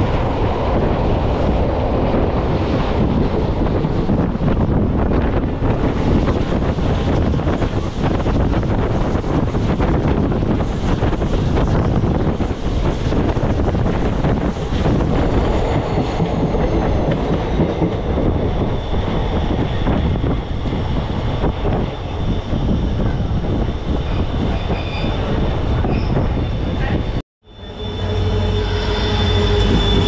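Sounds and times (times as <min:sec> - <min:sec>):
high squeals: 0:23.6 - 0:30.0.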